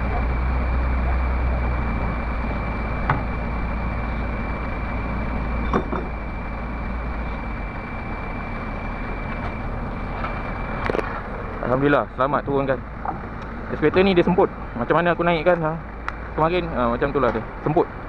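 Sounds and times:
diesel engine idling: 0:00.0 - 0:18.0
metallic knocks: 0:05.7 - 0:06.1.

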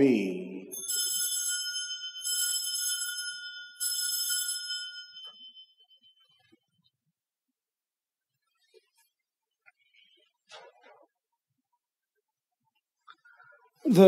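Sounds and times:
altar bells jingling: 0:00.7 - 0:06.3.

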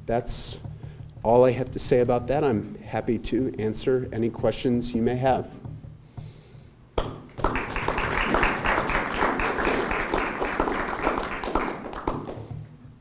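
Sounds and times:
audience applauding: 0:07.3 - 0:12.6.

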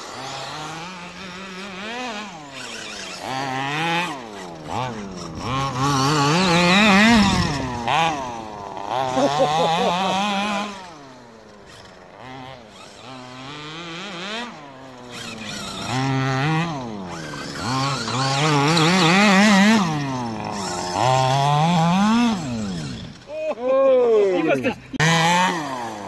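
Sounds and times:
small two-stroke engine revving: 0:00.0 - 0:26.0.

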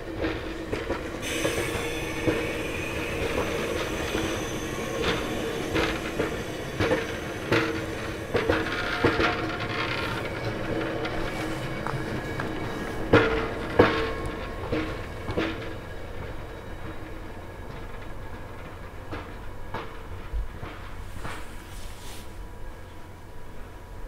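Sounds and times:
train wheels clicking over joints: 0:00.0 - 0:21.9
high wheel squeal: 0:01.2 - 0:13.0.

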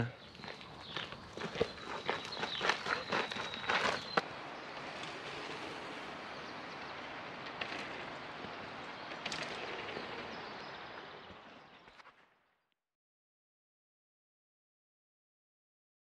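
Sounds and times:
outdoor ambient hiss: 0:03.7 - 0:11.9.

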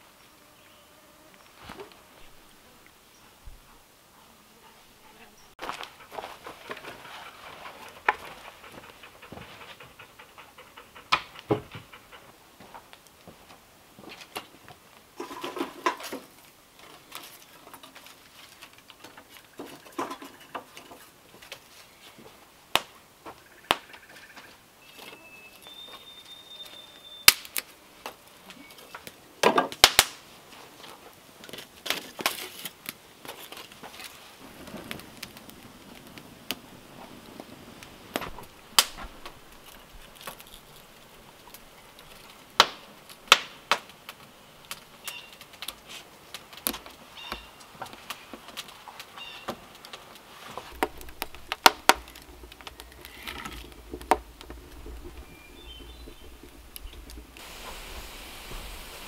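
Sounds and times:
firewood knocking and clattering: 0:05.6 - 0:13.4, 0:15.2 - 0:23.8, 0:28.9 - 0:30.2, 0:30.8 - 0:57.9.

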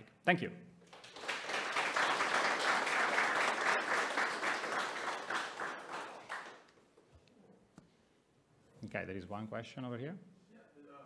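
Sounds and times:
audience applauding: 0:00.9 - 0:06.7.

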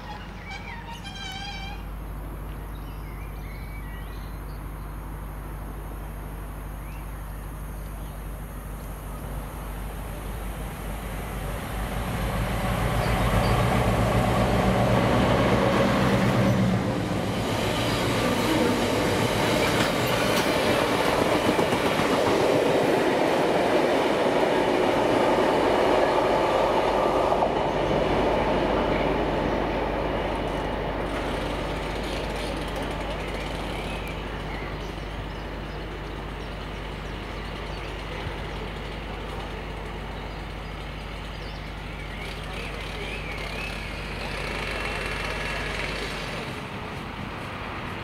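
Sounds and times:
diesel locomotive engine: 0:00.0 - 0:48.0
train wheels on rails: 0:10.1 - 0:48.0.

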